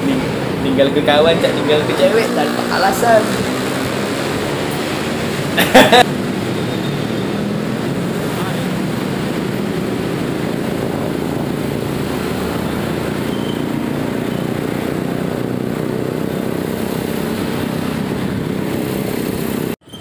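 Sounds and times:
motorcycle engine running: 0:01.4 - 0:19.8
wind noise on microphone: 0:08.9 - 0:20.0.

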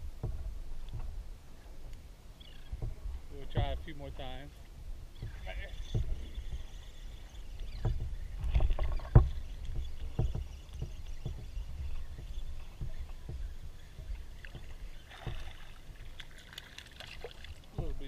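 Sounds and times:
low knocks on hull: 0:00.0 - 0:01.9, 0:02.6 - 0:16.2, 0:17.2 - 0:18.0
waves lapping against boat hull: 0:00.0 - 0:18.0.

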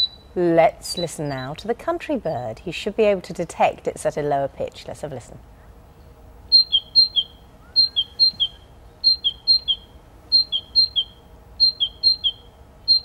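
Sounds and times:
songbird singing two-note phrase: 0:06.5 - 0:13.0.

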